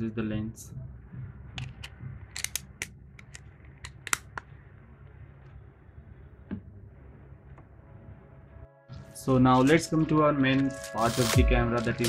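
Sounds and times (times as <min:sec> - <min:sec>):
plastic lens cap clicks: 0:01.6 - 0:04.4.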